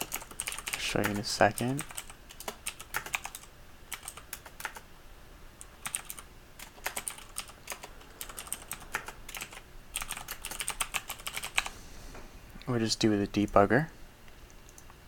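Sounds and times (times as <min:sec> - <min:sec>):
keyboard typing clicks: 0:00.0 - 0:04.8, 0:05.6 - 0:11.7, 0:14.3 - 0:15.0.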